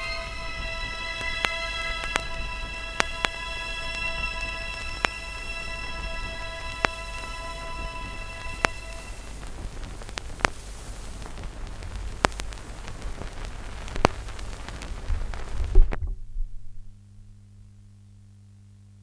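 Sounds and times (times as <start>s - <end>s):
held orchestral note: 0.0s - 9.8s
faint low hum: 0.0s - 19.0s
vinyl record crackle and pops: 0.0s - 19.0s.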